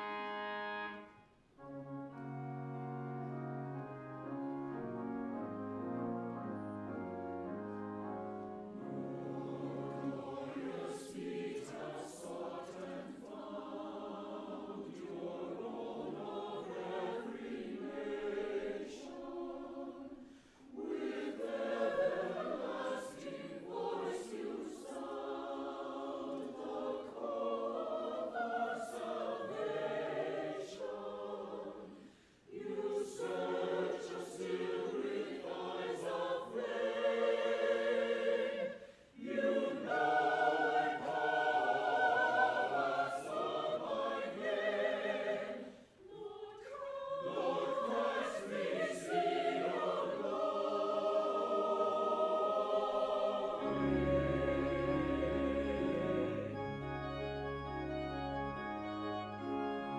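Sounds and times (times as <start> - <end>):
church choir singing: 0.0 - 59.9
organ low pedal notes: 53.6 - 59.9.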